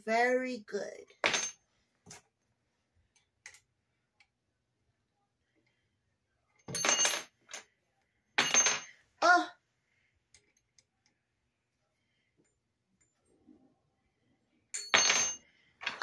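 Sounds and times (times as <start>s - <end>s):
metal clink: 6.6s - 7.7s, 14.7s - 16.0s.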